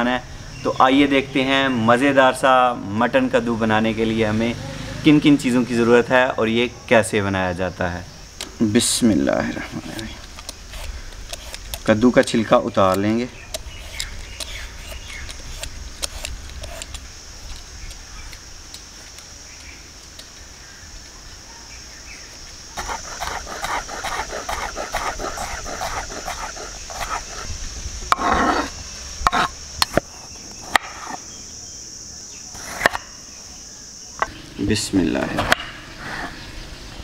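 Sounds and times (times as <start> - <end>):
high insect chirr: 0.0 - 37.0
peeler scraping gourd rind: 9.8 - 19.2, 22.8 - 27.5, 28.1 - 29.6.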